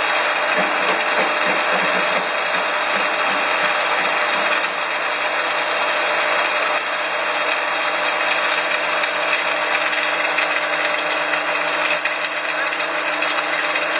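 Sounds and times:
processing line machinery running: 0.0 - 13.9.

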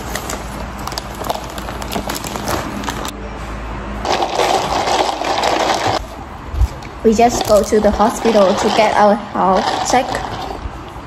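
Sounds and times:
plastic bag crinkling: 0.0 - 3.1, 4.0 - 10.6
sipping through a straw: 4.1 - 6.1, 7.3 - 11.0.

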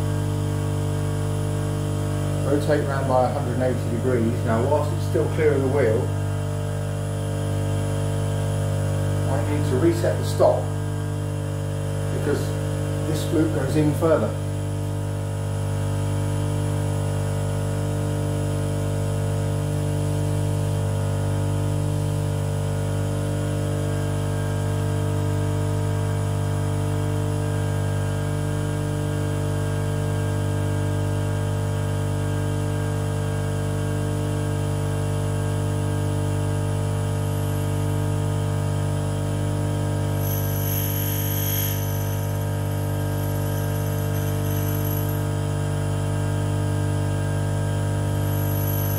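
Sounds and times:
grinder motor humming: 36.4 - 48.9.

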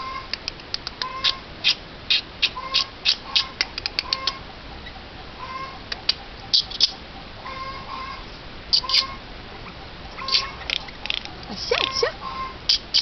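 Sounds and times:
jay making sharp clicks: 0.3 - 4.4.

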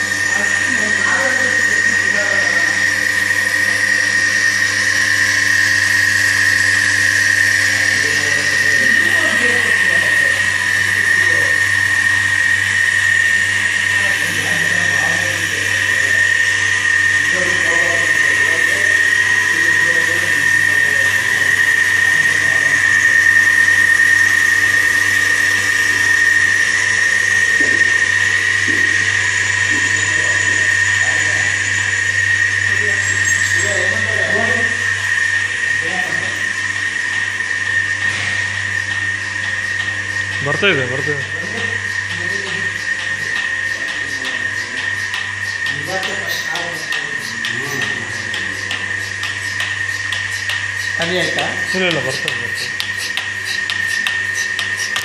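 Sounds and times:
vacuum pump whining: 0.0 - 55.0.

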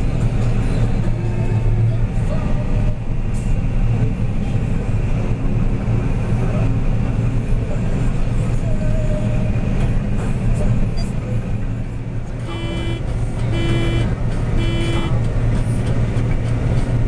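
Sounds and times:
combine harvester droning: 11.5 - 17.0.

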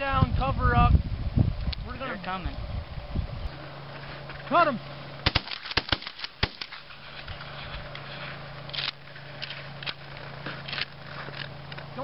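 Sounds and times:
low steady hum: 0.0 - 12.0
rustling: 3.5 - 11.9
shotgun shots: 5.2 - 6.9.

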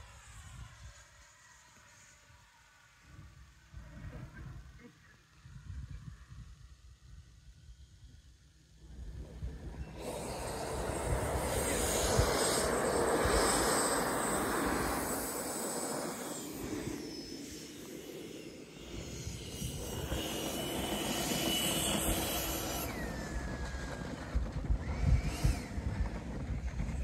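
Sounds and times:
electric model jet whining: 0.0 - 27.0
wind gusts on microphone: 8.9 - 18.0, 18.8 - 27.0.

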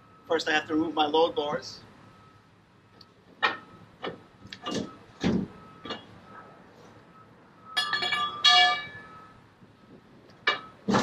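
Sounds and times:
metal bar clanking on pavement: 3.4 - 6.1, 7.8 - 9.0, 10.4 - 11.0
heavy thump: 4.1 - 5.6.

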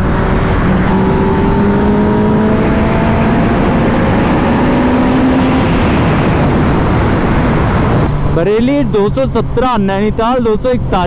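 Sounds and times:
motorcycle engine accelerating: 0.0 - 8.4
wind rush: 0.0 - 11.0.

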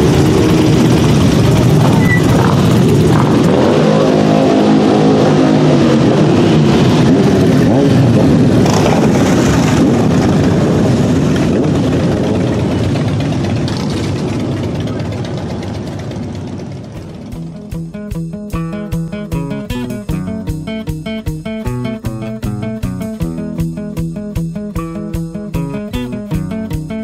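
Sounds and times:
motorcycle engines revving: 0.0 - 27.0.

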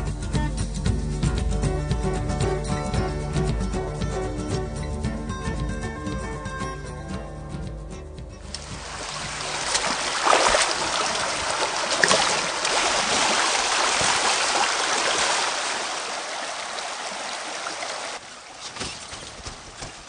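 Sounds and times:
splashing of wading: 8.4 - 20.0
stream water rushing: 8.4 - 20.0.

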